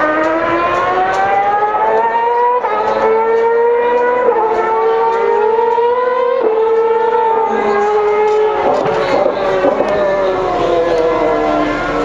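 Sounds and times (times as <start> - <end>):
racing car engine accelerating: 0.0 - 12.0.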